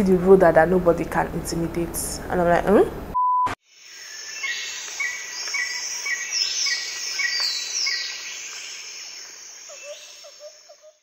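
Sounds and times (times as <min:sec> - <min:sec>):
steady insect hiss: 0:03.6 - 0:11.0
higher falling bird calls: 0:03.9 - 0:11.0.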